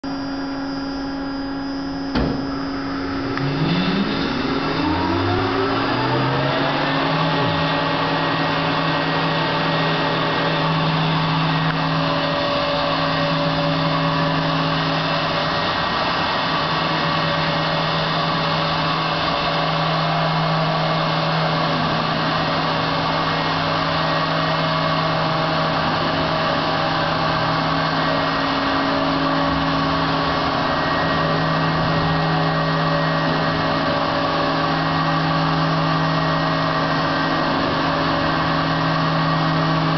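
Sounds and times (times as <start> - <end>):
machine hum: 0.0 - 39.9
spindle motors whining: 0.1 - 39.9.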